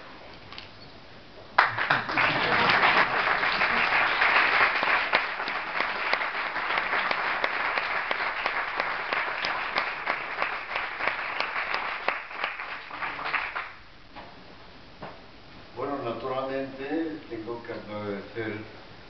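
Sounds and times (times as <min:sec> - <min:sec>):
audience applauding: 0:01.6 - 0:13.8.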